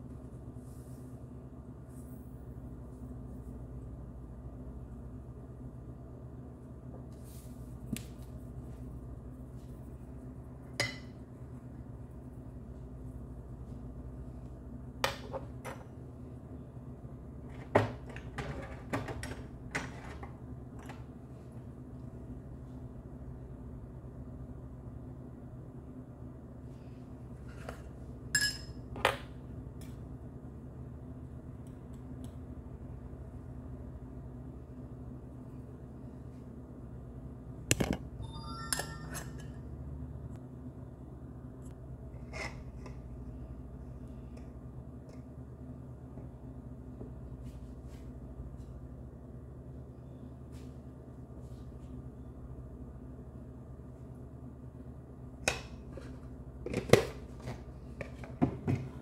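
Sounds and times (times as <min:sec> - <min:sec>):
steady low hum: 0:00.0 - 0:59.0
kitchenware clink ringing: 0:28.3 - 0:28.8
click: 0:31.6 - 0:32.4.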